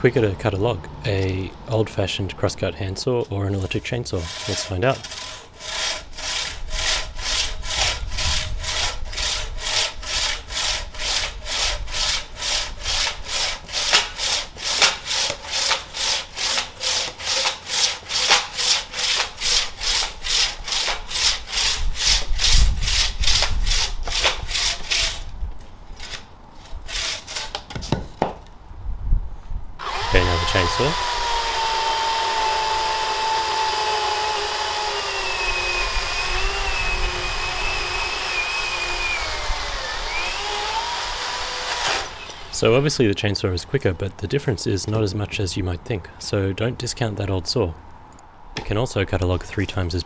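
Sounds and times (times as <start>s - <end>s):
handsaw cutting through log: 4.2s - 25.3s, 26.0s - 27.6s, 29.8s - 42.9s.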